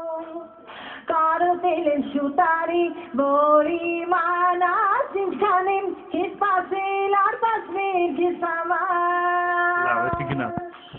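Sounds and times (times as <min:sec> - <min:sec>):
high-pitched voice singing: 0:09.8 - 0:10.7.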